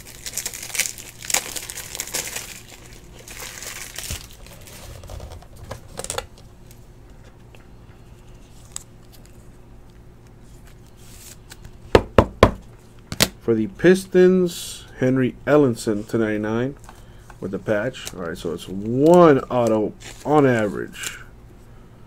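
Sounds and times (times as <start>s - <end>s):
plastic wrapper tearing and crinkling: 0.0s - 6.4s.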